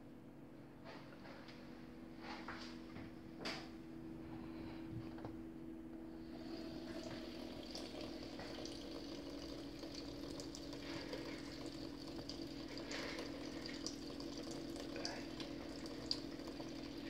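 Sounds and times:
low hum: 1.9 - 10.7
tap water running into sink: 6.3 - 17.0.

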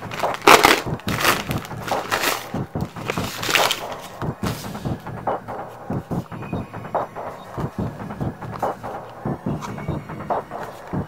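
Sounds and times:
knife slicing plastic mailer: 0.0 - 2.5
plastic crinkling: 0.0 - 4.2.

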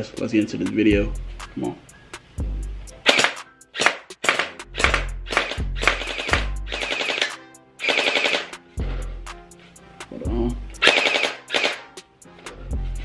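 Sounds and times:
background music: 0.0 - 13.0
gel blaster rapid-fire bursts: 3.0 - 8.6, 10.8 - 11.9.

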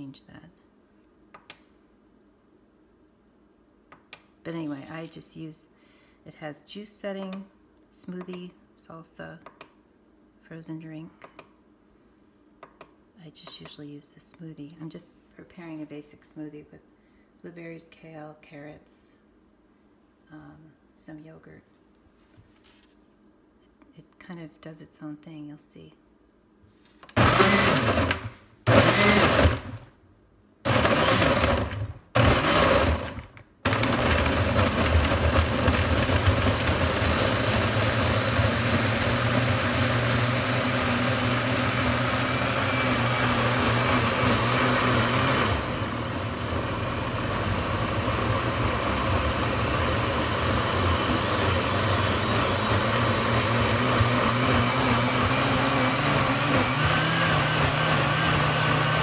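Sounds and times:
blender blending ice: 27.1 - 29.8, 30.7 - 59.0.

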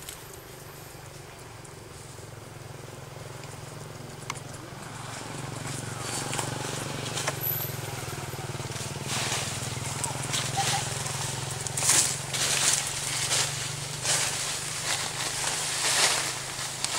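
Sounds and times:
low mechanical hum: 0.0 - 16.9
rustling: 8.6 - 16.9.

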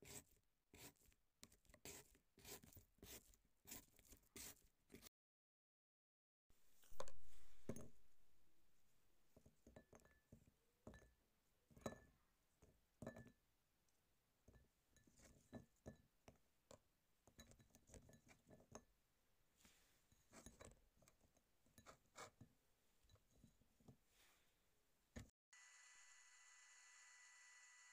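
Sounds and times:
fruit tapping on glass dish: 6.9 - 8.1.

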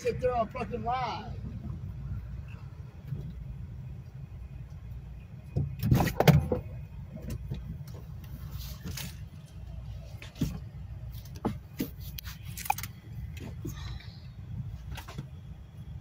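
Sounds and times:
steady low hum: 0.0 - 16.0
knocks and rattles: 5.5 - 8.2.

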